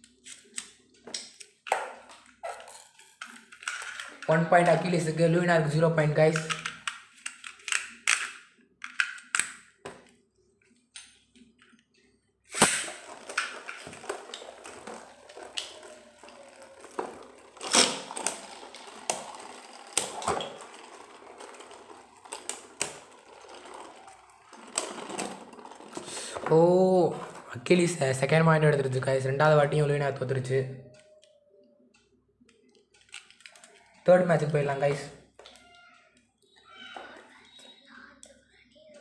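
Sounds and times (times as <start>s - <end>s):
plastic clicks: 6.3s - 11.8s, 30.9s - 38.4s
spinning tops rattling: 12.5s - 30.1s.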